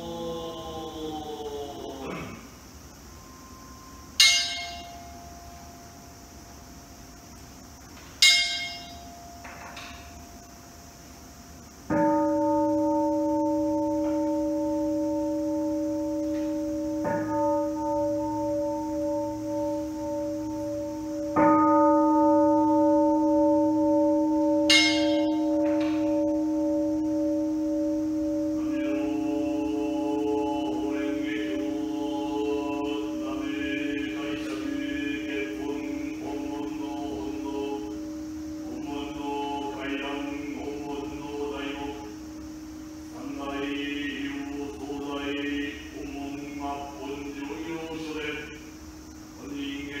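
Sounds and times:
chanting: 0.0s - 6.4s, 11.9s - 50.0s
deep bowl bell ringing: 3.1s - 6.4s, 8.2s - 10.5s, 11.9s - 48.6s
small bright bell: 4.2s - 5.1s, 8.2s - 9.5s, 24.7s - 26.1s.

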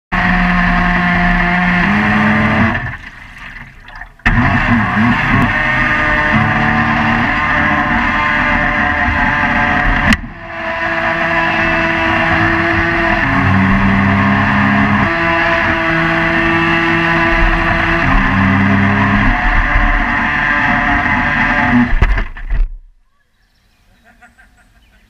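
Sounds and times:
water rushing past hull: 2.1s - 6.2s.

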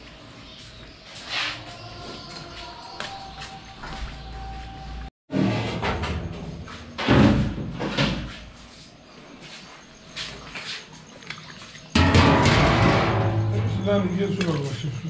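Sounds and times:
metal cookware clanking: 12.0s - 14.5s.

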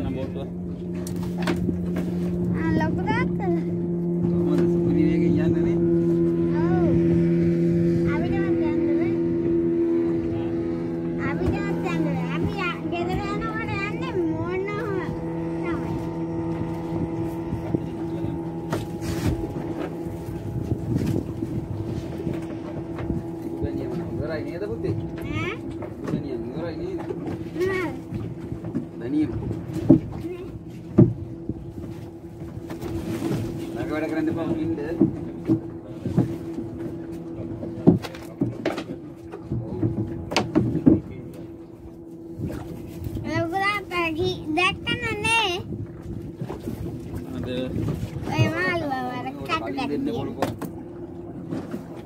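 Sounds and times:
boat engine running: 0.0s - 52.0s
brief knocks or splashes: 0.9s - 2.5s, 16.0s - 23.6s, 26.9s - 41.6s, 50.3s - 52.0s.

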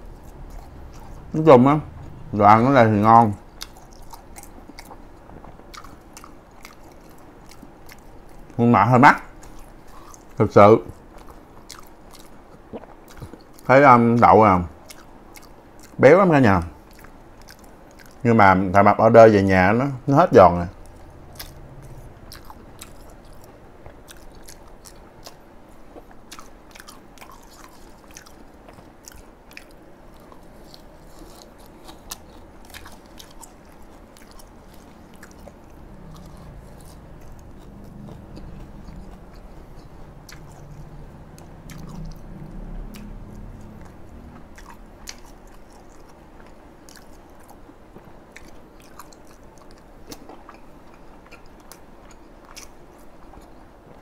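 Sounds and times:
close chewing and biting: 0.0s - 8.6s, 9.2s - 18.9s, 20.3s - 54.0s
low hum: 0.0s - 8.6s, 19.0s - 48.2s.

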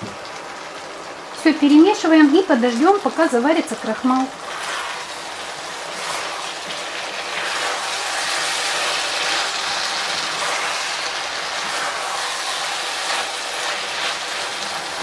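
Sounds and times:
food sizzling in a frying pan: 0.0s - 15.0s
plastic spatula scraping a pan: 4.4s - 14.2s.

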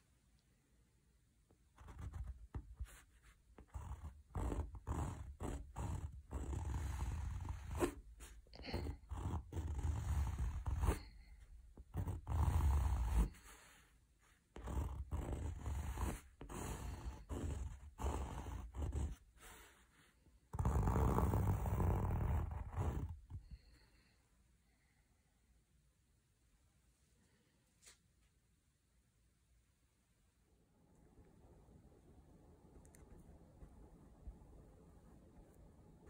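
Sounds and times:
pencil scratching on canvas: 1.7s - 23.5s.

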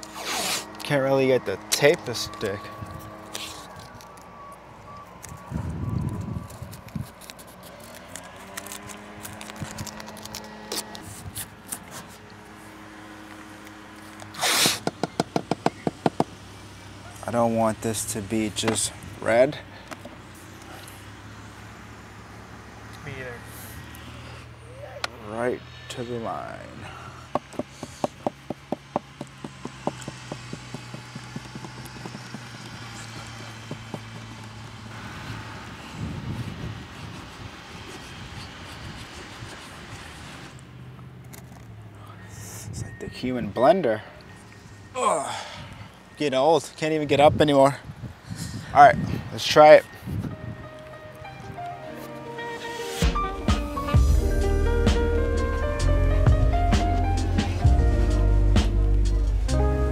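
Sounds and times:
tape tearing and crackling: 0.0s - 0.9s, 2.8s - 4.3s, 6.0s - 12.3s, 14.0s - 15.0s.

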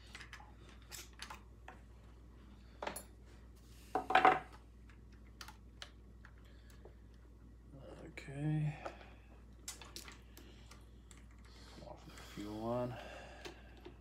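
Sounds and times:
small parts clicking and knocking: 9.6s - 11.5s.

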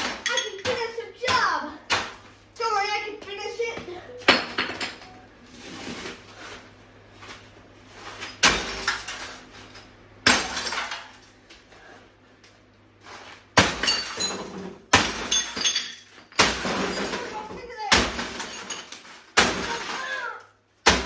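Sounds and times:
broken glass crunching and clinking: 0.0s - 0.9s, 8.2s - 11.3s, 13.6s - 20.3s
sledgehammer smashing television: 8.4s - 9.4s, 10.2s - 11.2s, 13.6s - 21.0s.

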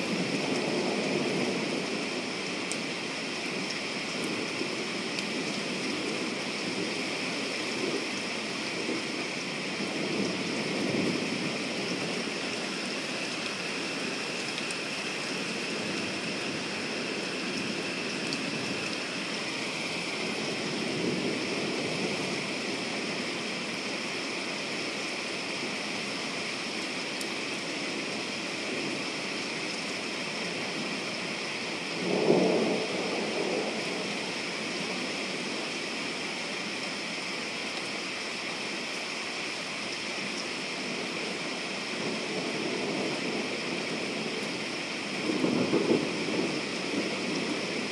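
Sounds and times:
steady rain falling: 0.0s - 47.9s
thunder rumbling: 32.0s - 34.1s, 45.2s - 47.9s.

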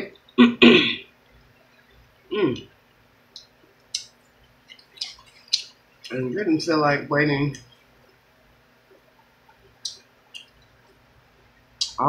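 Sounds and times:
person humming: 2.3s - 2.7s
mouth clicks and lip smacks: 3.3s - 6.2s, 8.9s - 11.0s, 11.8s - 12.0s.

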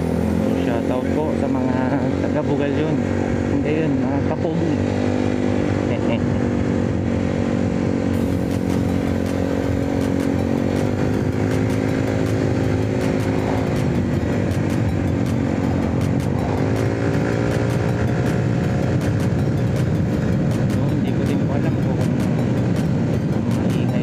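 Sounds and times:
scooter engine running: 0.0s - 24.0s
wind and road noise: 0.0s - 24.0s.

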